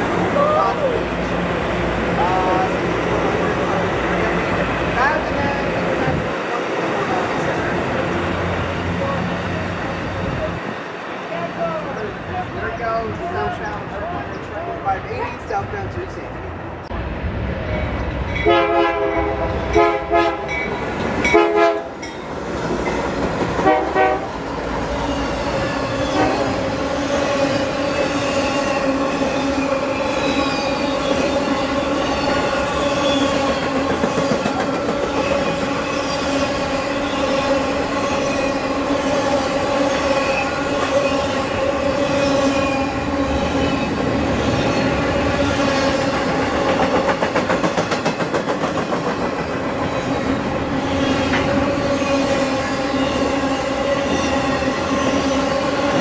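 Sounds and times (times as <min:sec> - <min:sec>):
locomotive air horn blasts: 0:18.4 - 0:20.5, 0:21.3 - 0:22.0, 0:23.6 - 0:24.3
train wheels clattering: 0:32.1 - 0:36.5, 0:45.8 - 0:52.1.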